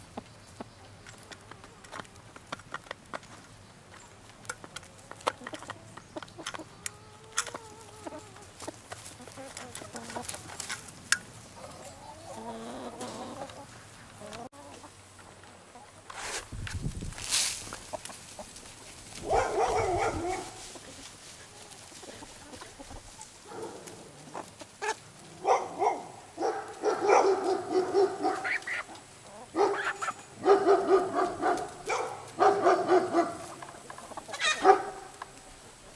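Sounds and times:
grain feed tossed on ground: 16.1 - 21.3.

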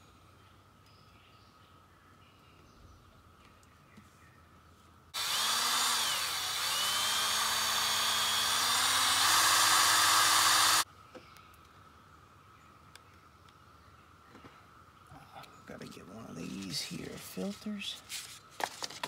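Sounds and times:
power drill whining: 5.2 - 10.8.

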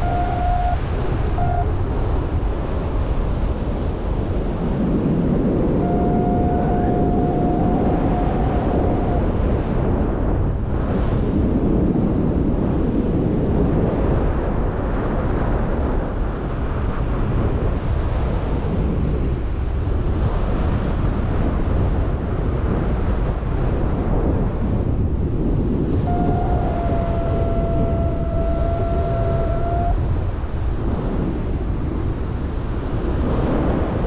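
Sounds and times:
wind rushing over microphone: 0.0 - 34.0
thin steady tone: 26.1 - 30.0.

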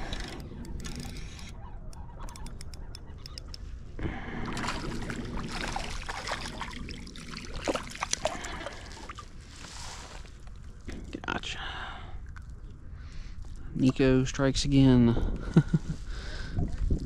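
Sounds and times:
water splashing and sloshing: 3.1 - 11.0.

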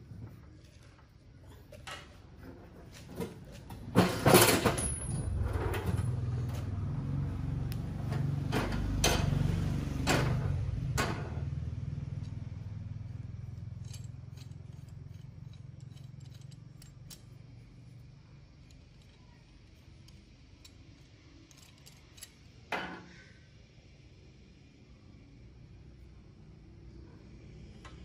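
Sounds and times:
metal clamp clicks and knocks: 13.8 - 17.4, 20.0 - 22.4.

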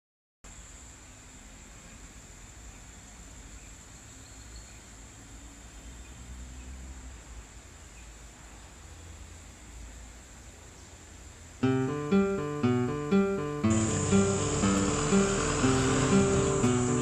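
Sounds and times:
insects chirring: 0.5 - 17.0
low outdoor rumble: 13.6 - 17.0.

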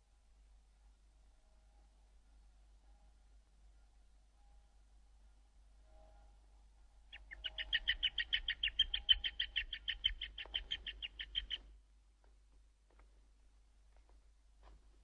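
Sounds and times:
rapid high chirps: 7.1 - 11.6.

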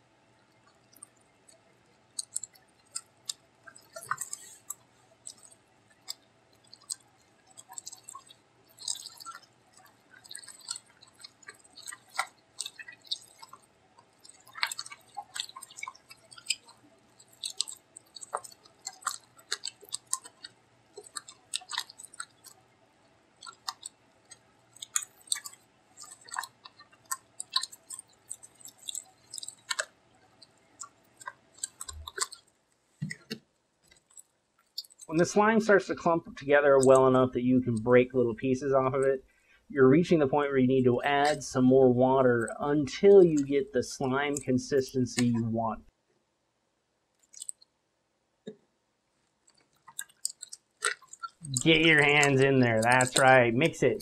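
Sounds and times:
slime squelching: 0.5 - 22.7, 23.3 - 45.9, 47.2 - 47.7, 49.3 - 54.0.

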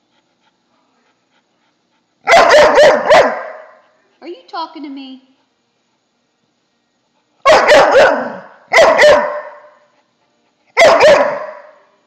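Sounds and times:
dog barking: 2.2 - 3.8, 7.4 - 9.8, 10.8 - 11.9.

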